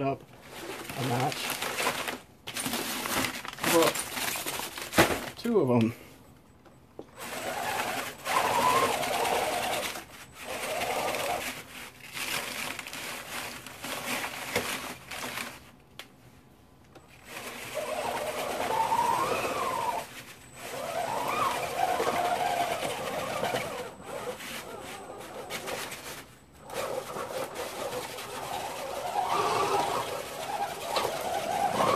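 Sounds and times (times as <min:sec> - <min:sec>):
electric motor and belt whining: 0:07.2 - 0:11.6, 0:17.3 - 0:31.9.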